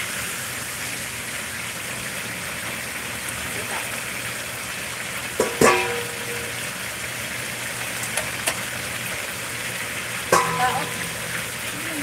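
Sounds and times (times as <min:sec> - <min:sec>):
chicken sizzling in oil: 0:00.0 - 0:12.0
spatula knocking on pan: 0:05.4 - 0:06.5, 0:10.3 - 0:11.4
pan ringing: 0:05.4 - 0:06.8, 0:10.3 - 0:11.7.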